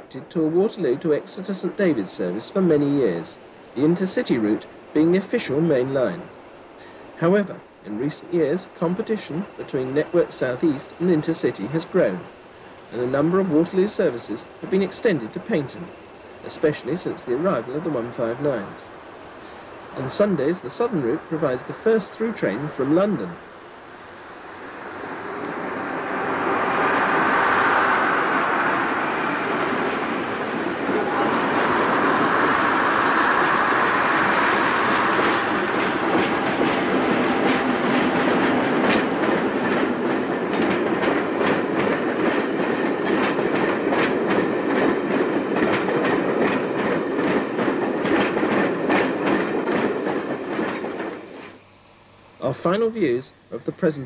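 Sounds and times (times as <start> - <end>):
diesel locomotive engine running: 9.4 - 52.5
wheels clacking over rail joints: 25.6 - 51.6.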